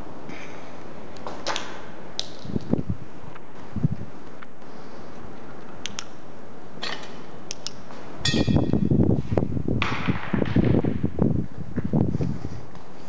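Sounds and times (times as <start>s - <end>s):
small clicks: 5.6s - 6.2s
low rumble on microphone: 8.2s - 13.0s.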